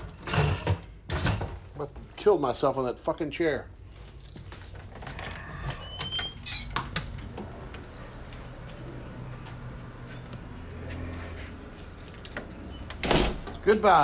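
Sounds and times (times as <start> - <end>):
door squeak: 5.0 - 7.0.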